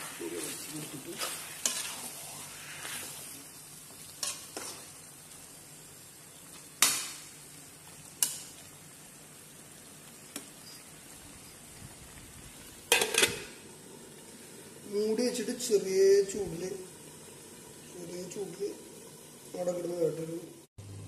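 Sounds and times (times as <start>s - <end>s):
metal spatula scraping a pan: 0.0s - 3.3s
food sizzling in a pan: 0.0s - 21.0s.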